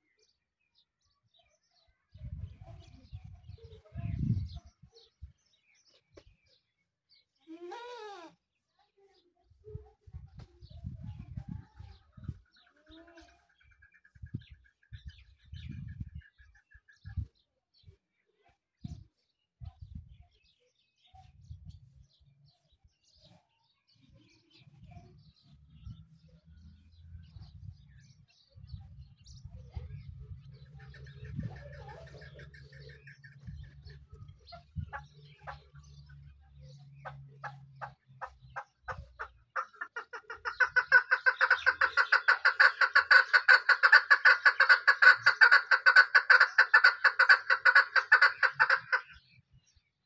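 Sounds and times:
partridge calling: 0:27.2 - 0:49.5.

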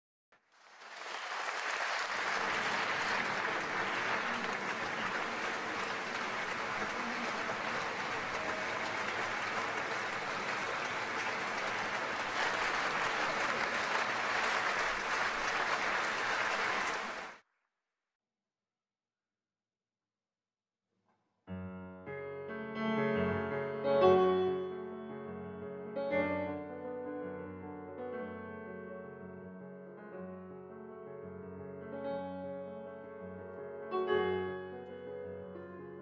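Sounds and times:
audience applauding: 0:00.4 - 0:17.4.

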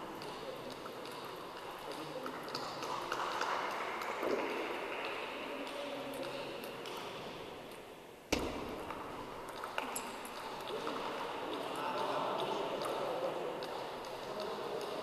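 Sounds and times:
hall hubbub: 0:00.0 - 0:08.2
table tennis ball clicking: 0:08.4 - 0:11.0.

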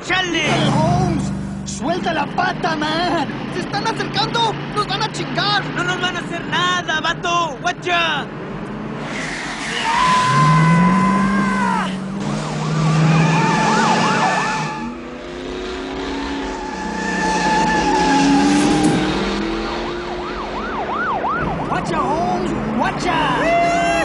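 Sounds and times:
car engines revving: 0:00.0 - 0:24.0
tyres squealing: 0:09.1 - 0:15.2, 0:16.0 - 0:19.2.

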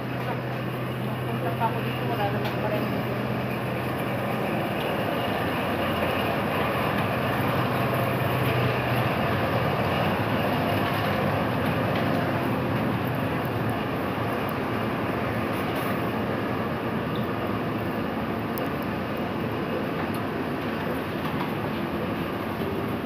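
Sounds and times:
steady rumble and hiss: 0:00.0 - 0:23.0.

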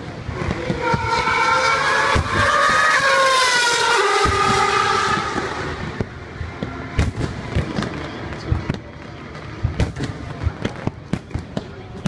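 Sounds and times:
race car passing at high revs: 0:00.0 - 0:08.3.

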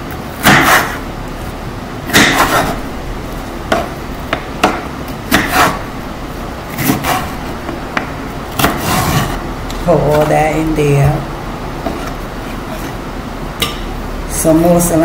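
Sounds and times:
knife chopping on wooden board: 0:00.4 - 0:01.0, 0:02.1 - 0:02.8, 0:03.7 - 0:05.8, 0:06.8 - 0:07.3, 0:07.9 - 0:09.4.

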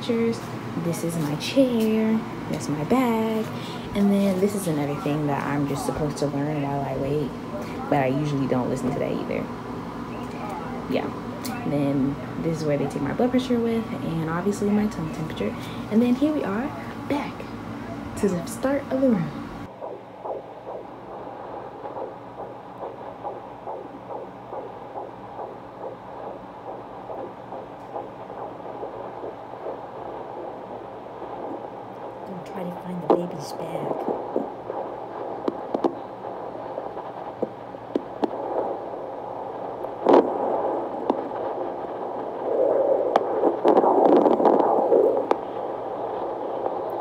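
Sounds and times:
fetal heartbeat through doppler speaker: 0:00.0 - 0:47.0
low hum: 0:00.0 - 0:47.0
sharp clicks: 0:19.8 - 0:32.3, 0:33.9 - 0:47.0.

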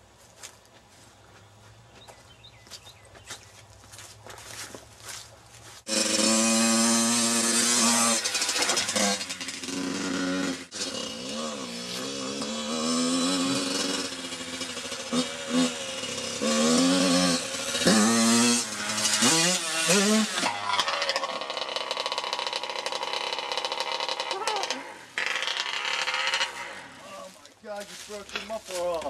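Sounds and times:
dirt bike engine revving: 0:05.8 - 0:27.4.

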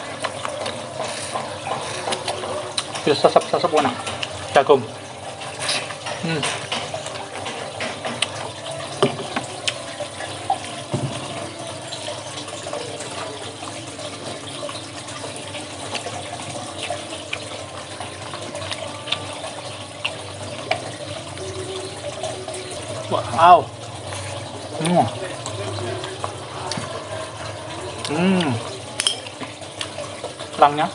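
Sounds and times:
chewing: 0:00.1 - 0:04.5, 0:18.4 - 0:22.0.

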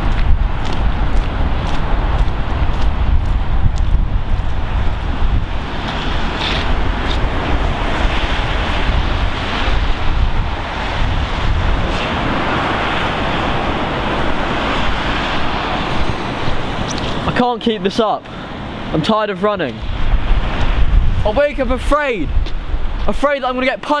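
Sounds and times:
wind blowing across microphone: 0:00.0 - 0:24.0.

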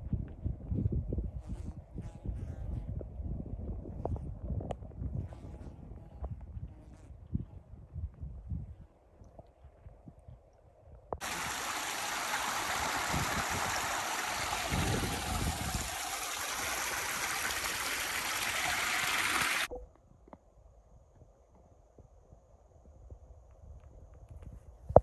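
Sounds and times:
stream water rushing: 0:11.2 - 0:19.7.

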